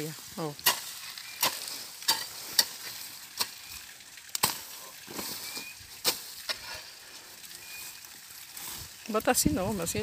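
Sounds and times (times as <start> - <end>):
hoe striking soil: 0.6 - 6.9.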